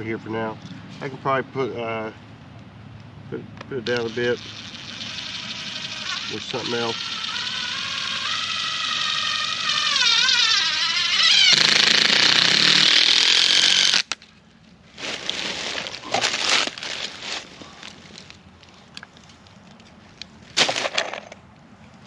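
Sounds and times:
power driver motor whine: 0:03.9 - 0:14.1.

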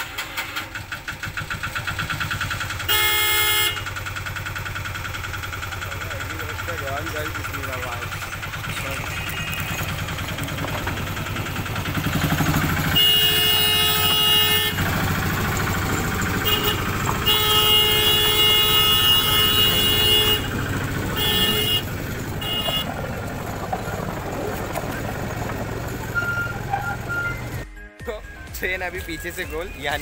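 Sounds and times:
miniature train engine running: 0:00.0 - 0:27.6
train horn blasts: 0:02.9 - 0:03.9, 0:12.8 - 0:15.2, 0:16.3 - 0:23.0.

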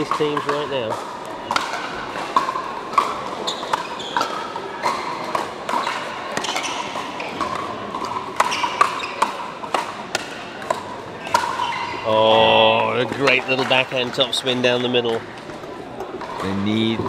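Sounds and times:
paddles hitting plastic ball: 0:00.0 - 0:11.6.

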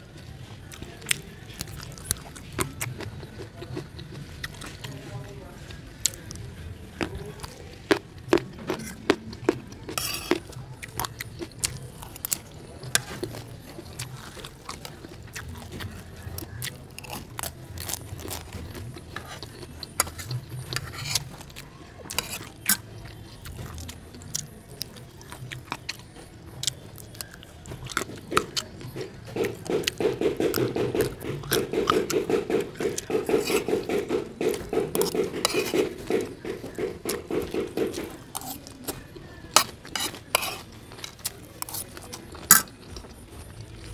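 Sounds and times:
chewing and biting food: 0:00.0 - 0:43.9
metal spoon scraping a plate: 0:09.9 - 0:10.5, 0:19.2 - 0:21.4, 0:22.1 - 0:22.8, 0:28.0 - 0:38.8, 0:39.6 - 0:42.7.

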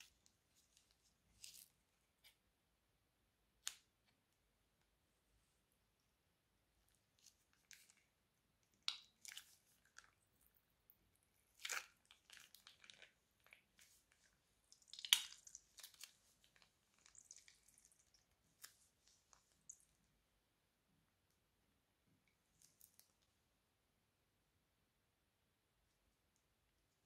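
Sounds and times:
slime crackling and squishing: 0:06.9 - 0:19.9.

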